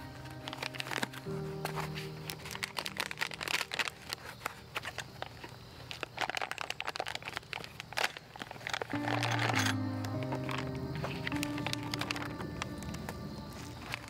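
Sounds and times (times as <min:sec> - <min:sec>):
packaging wrap crinkling: 0:00.0 - 0:14.0.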